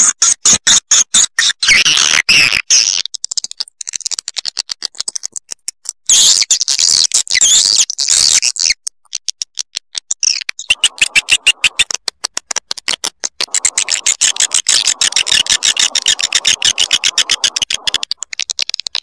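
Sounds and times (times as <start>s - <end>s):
swiftlets twittering chirps: 10.7s - 11.9s, 13.5s - 18.1s
sharp clicks: 10.7s - 12.4s, 13.2s - 19.0s.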